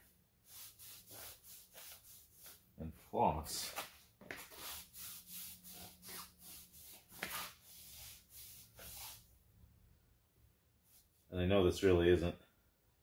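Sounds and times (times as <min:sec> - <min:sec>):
cloth rubbing on metal frame: 0:00.4 - 0:02.6, 0:03.5 - 0:09.3.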